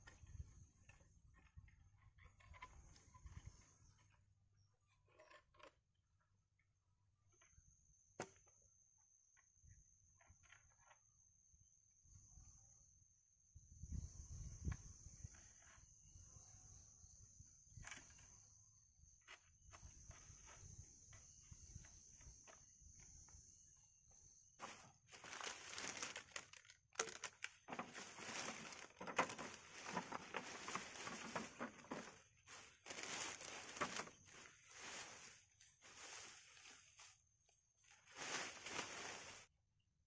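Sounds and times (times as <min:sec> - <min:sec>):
plastic bag rustling and crinkling: 0:24.6 - 0:37.2, 0:37.8 - 0:39.5.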